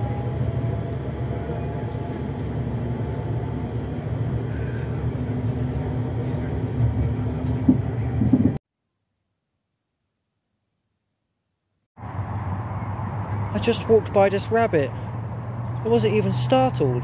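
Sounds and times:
train rumbling inside carriage: 0.0 - 8.6.

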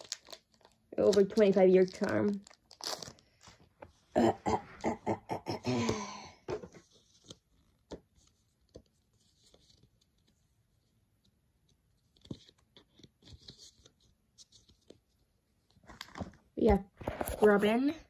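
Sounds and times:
trading cards rustling and clicking: 0.0 - 3.9, 15.9 - 18.0.

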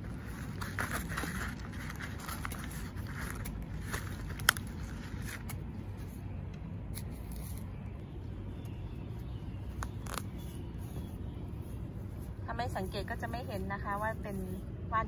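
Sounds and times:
dry leaves rustling and crackling: 0.0 - 6.3, 9.2 - 14.6.

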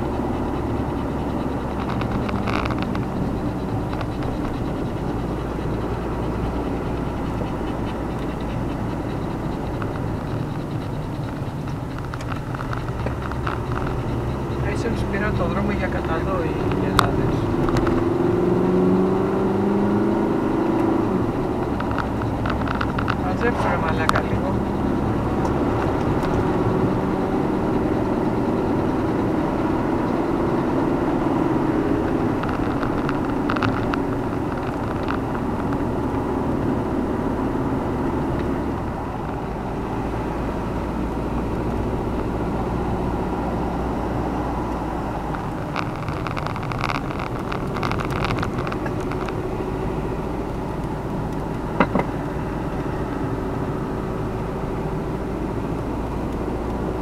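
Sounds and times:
clicks and rattles: 0.0 - 18.1, 21.5 - 26.8, 32.0 - 36.2, 44.7 - 49.7
car engine and tyre noise: 0.0 - 57.0.

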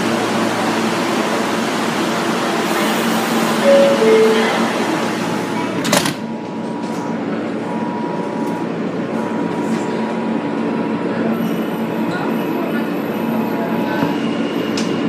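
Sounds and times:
train running noise: 0.0 - 15.0
platform noise: 3.6 - 5.5
subway door chime: 3.6 - 5.9.

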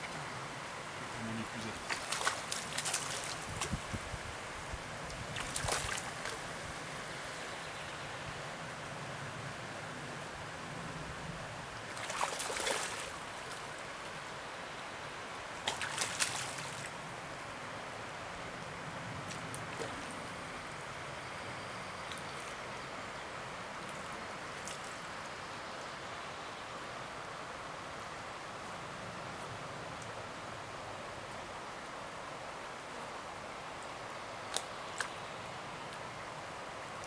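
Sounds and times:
river water rushing: 0.0 - 10.7, 11.4 - 21.1
water splashing: 1.3 - 3.9, 5.3 - 6.5, 11.9 - 13.7, 15.6 - 17.0.

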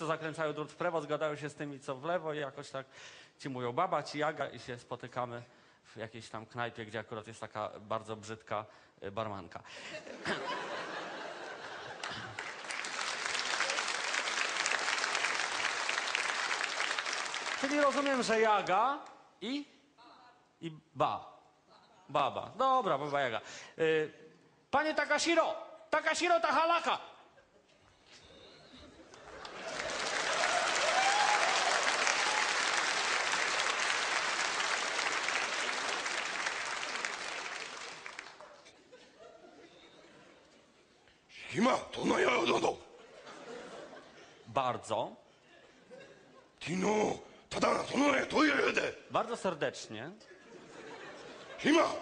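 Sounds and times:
audience laughing: 9.9 - 12.6, 28.7 - 30.6, 43.0 - 44.5, 50.3 - 52.0
audience applauding: 11.8 - 18.7, 29.1 - 38.7.

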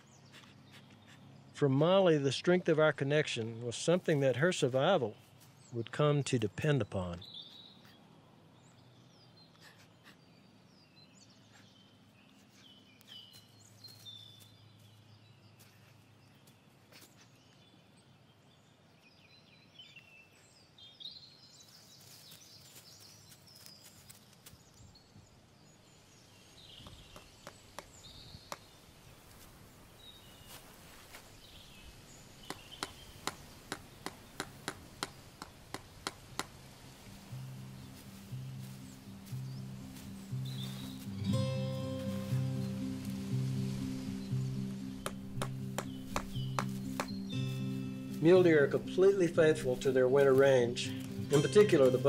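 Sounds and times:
faint bird calls: 9.4 - 10.7.

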